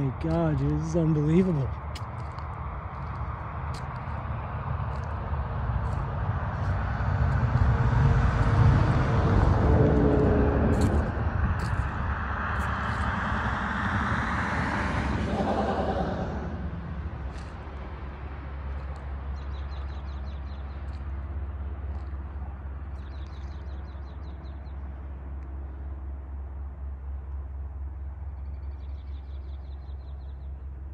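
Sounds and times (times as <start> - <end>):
steady low rumble: 0.0 - 30.9
vehicle driving past: 5.7 - 18.8.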